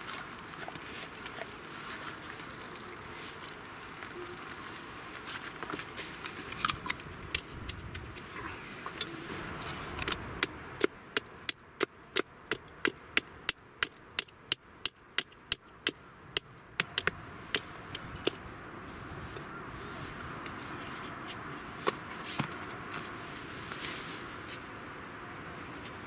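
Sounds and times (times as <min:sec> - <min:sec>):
hatchet chopping wooden stick: 0:10.0 - 0:18.4.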